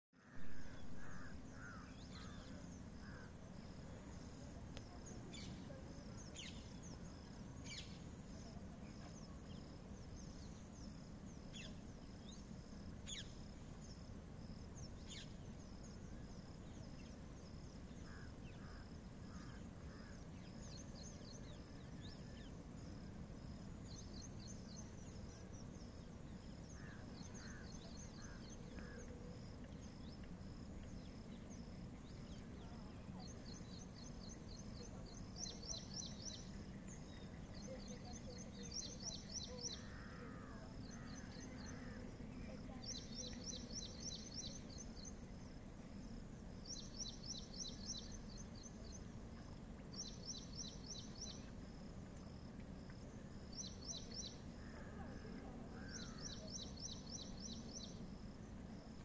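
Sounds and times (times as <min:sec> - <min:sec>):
insect trill: 0:00.2 - 0:59.0.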